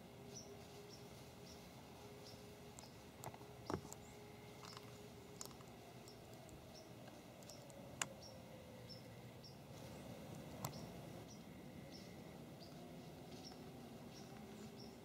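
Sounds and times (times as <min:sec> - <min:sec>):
soft clicks and rustles: 0:02.7 - 0:08.2.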